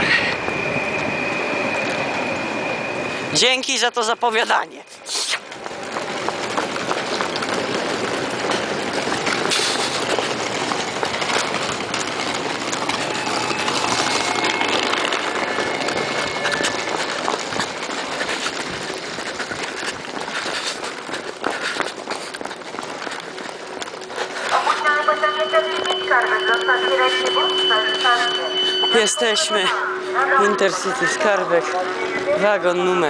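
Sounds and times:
faint steady tones: 23.2s - 33.0s.

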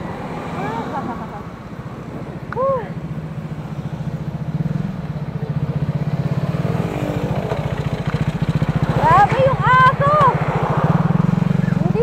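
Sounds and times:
motorcycle engine running: 2.9s - 12.0s.

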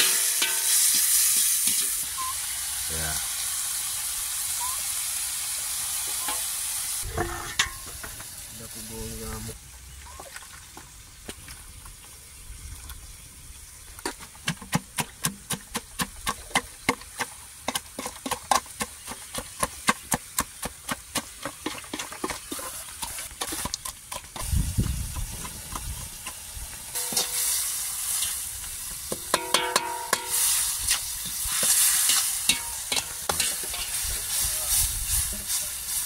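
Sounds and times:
vegetables sizzling in a wok: 0.0s - 9.6s, 24.4s - 36.0s.

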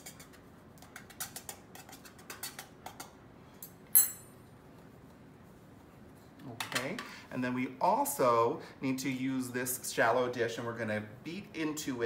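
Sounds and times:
sharp metallic clink: 3.9s - 4.3s.

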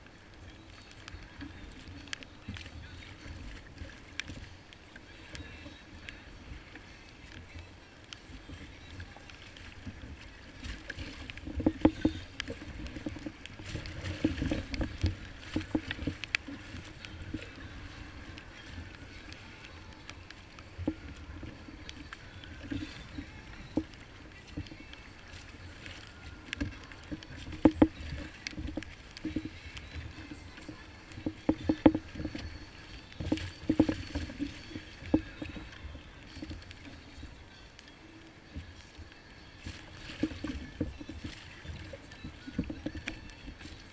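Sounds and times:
waves splashing against kayak hull: 0.0s - 43.9s
knocks and thumps on hull: 8.5s - 19.5s, 25.4s - 37.2s, 39.6s - 43.9s.

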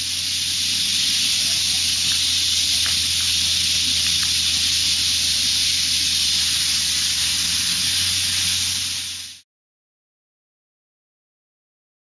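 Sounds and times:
loud steady hiss: 0.0s - 9.4s
low hum: 0.0s - 9.4s.

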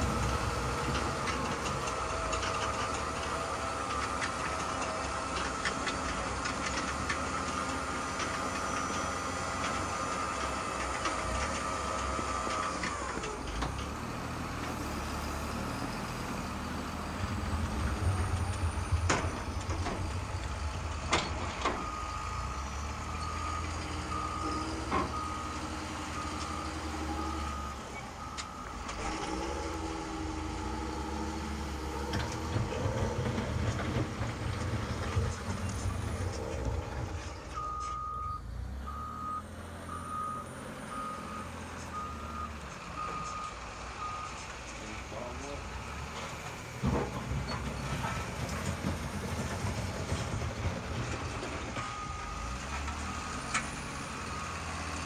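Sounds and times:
reversing beeper: 15.6s - 34.1s, 35.0s - 44.4s, 51.8s - 55.0s
low machine rumble: 17.0s - 24.4s.

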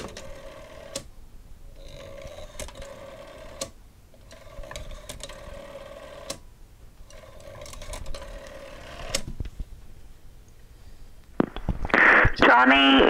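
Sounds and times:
rotary phone dial whirring: 0.0s - 1.1s, 1.7s - 6.4s, 7.0s - 9.3s.

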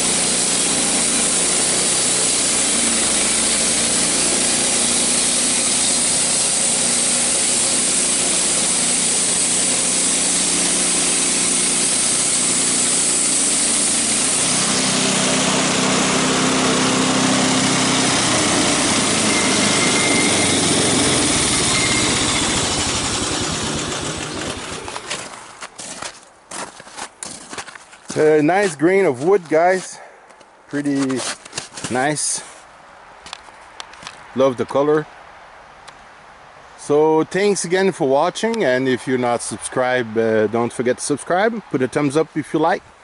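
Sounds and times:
band saw mill sawing log: 0.0s - 30.1s, 30.8s - 32.7s.

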